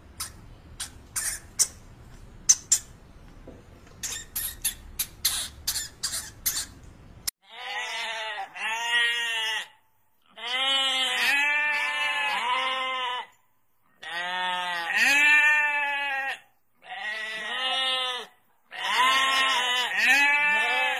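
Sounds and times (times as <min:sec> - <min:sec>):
sheep bleating: 0:07.4 - 0:13.4, 0:14.0 - 0:20.9.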